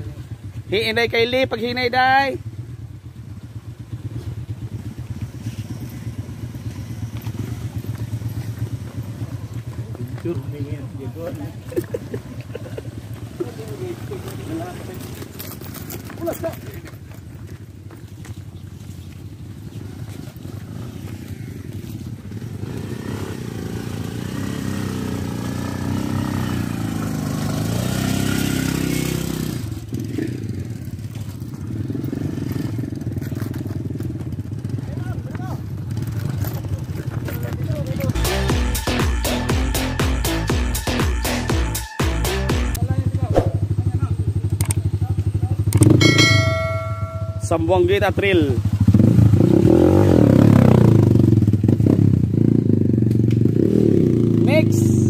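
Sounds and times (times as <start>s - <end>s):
motorcycle engine at low revs: 1.9s - 38.2s, 42.7s - 55.0s.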